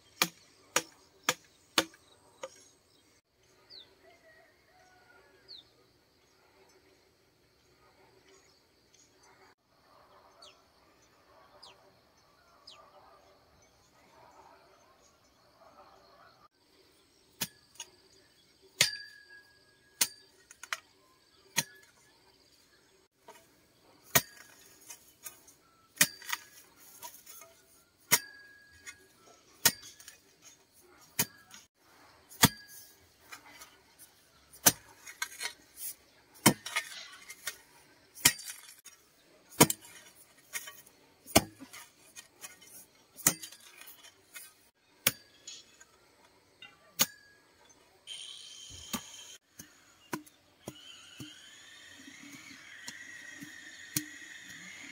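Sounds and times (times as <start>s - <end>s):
iron bar clinking into hard ground: 18.8s - 20.9s, 26.0s - 31.7s, 32.3s - 33.7s, 38.2s - 39.0s, 39.6s - 46.0s.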